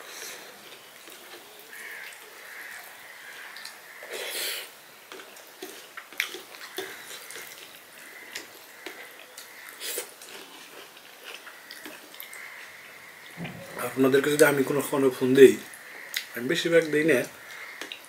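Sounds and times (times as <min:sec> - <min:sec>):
noisy burst: 0:13.3 - 0:15.3.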